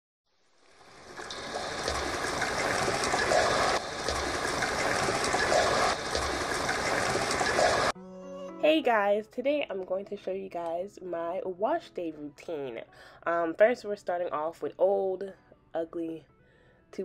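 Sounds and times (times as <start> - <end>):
water-like rushing noise: 0.6 - 7.9.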